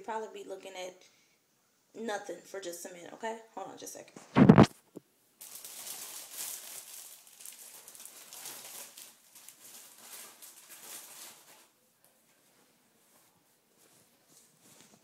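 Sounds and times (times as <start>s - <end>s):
plastic bag rustling: 5.4s - 11.8s.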